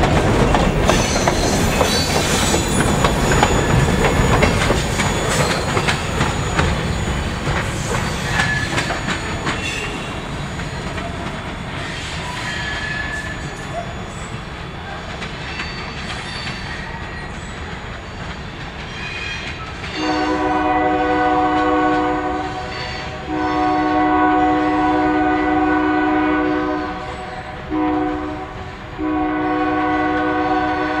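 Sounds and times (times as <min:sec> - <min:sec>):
locomotive air horn blasts: 0:20.0 - 0:31.0.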